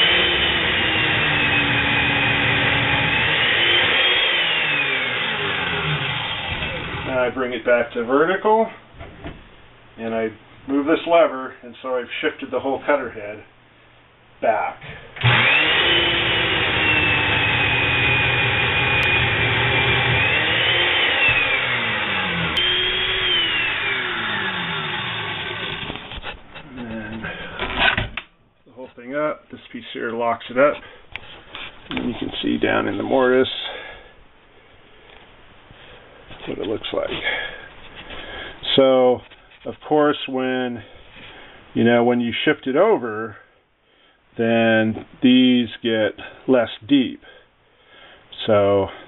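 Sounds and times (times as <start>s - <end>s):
chain mortiser cutting timber: 0.0s - 7.1s, 15.2s - 26.6s.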